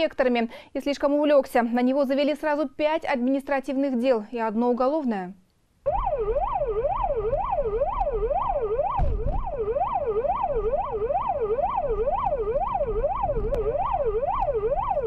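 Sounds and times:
police siren yelping: 5.9s - 15.0s.

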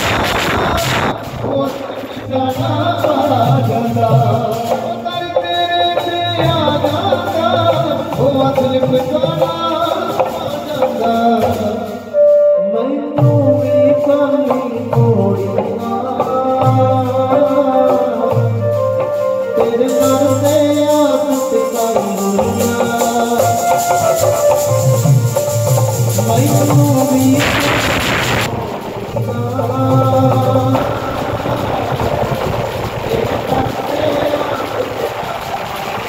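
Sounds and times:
deep drum strokes: 0.0s - 4.9s, 22.0s - 36.0s
tabla: 0.0s - 36.0s
voices singing: 26.1s - 36.0s.

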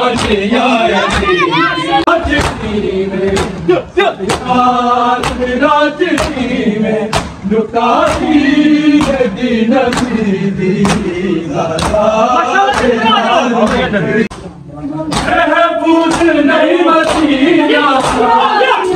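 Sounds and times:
men chanting together: 0.0s - 14.3s, 15.0s - 18.9s
chest beating slaps: 1.0s - 4.6s, 5.2s - 10.2s, 10.8s - 12.1s, 12.7s - 15.4s, 16.0s - 16.4s, 17.0s - 18.9s.

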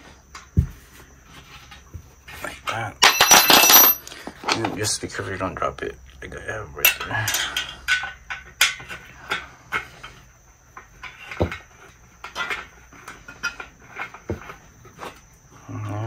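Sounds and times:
metal parts knocking: 3.0s - 4.1s.

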